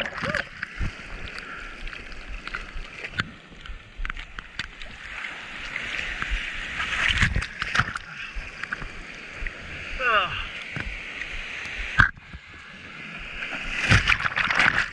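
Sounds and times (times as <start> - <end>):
whitewater splashing against surfboard: 4.6 - 8.0, 13.2 - 14.9.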